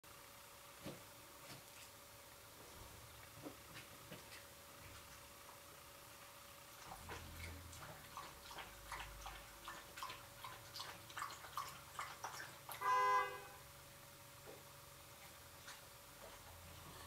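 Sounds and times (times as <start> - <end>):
loud horn-like tone: 12.8 - 13.7.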